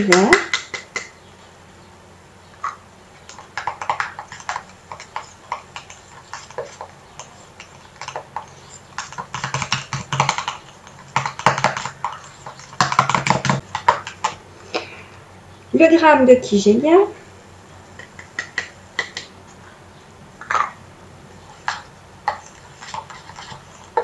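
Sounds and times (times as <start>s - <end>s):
metal utensil scraping metal bowl: 21.4s - 24.0s.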